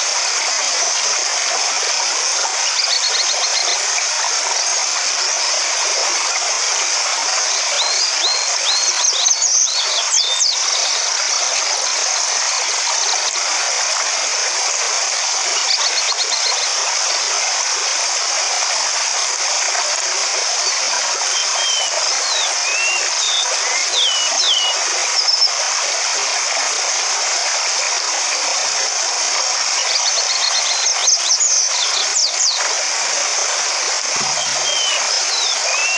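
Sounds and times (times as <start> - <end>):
stream rushing over rocks: 0.0 - 35.9
birds chirping: 21.3 - 25.5, 34.1 - 35.9.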